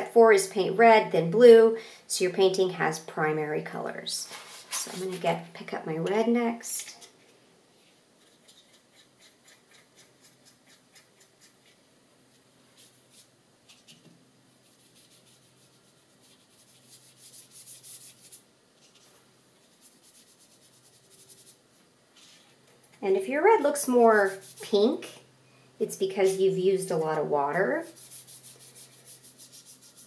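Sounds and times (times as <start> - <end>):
paintbrush scrubbing: 8.2 - 11.8, 14.6 - 21.6, 24.1 - 24.8, 27.8 - 30.0
brush strokes on paper: 14.6 - 21.6, 24.1 - 24.8, 27.9 - 30.0.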